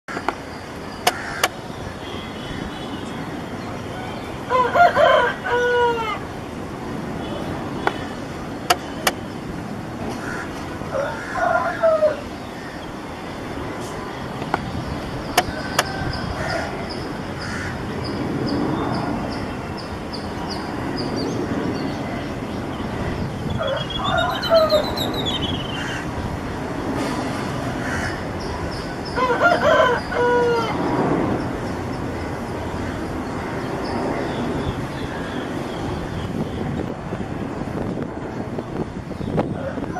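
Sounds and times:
jet airliner engines rumbling: 0:00.0 - 0:39.9
rooster crowing: 0:04.5 - 0:06.3, 0:10.3 - 0:12.3, 0:15.5 - 0:16.8, 0:23.6 - 0:25.0, 0:29.0 - 0:30.8, 0:39.6 - 0:39.9.

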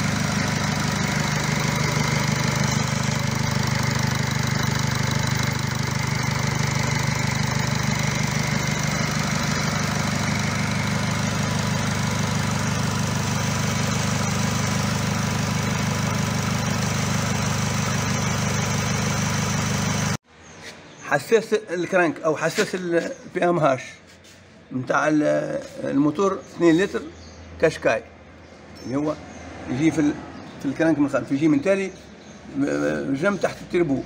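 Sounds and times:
diesel engine idling: 0:00.0 - 0:20.2.

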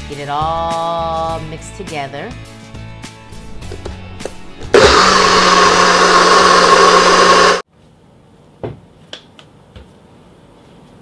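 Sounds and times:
blender whirring: 0:03.6 - 0:07.6.

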